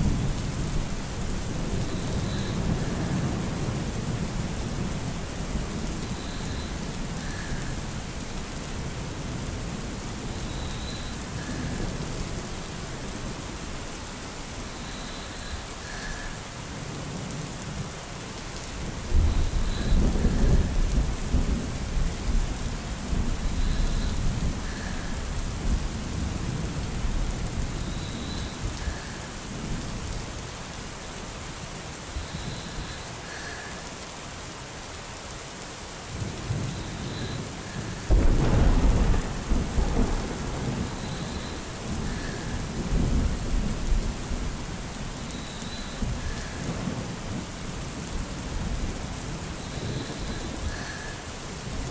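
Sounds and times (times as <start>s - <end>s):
steady rain falling: 0.0s - 51.9s
low roll of thunder: 19.1s - 29.8s, 36.5s - 44.9s.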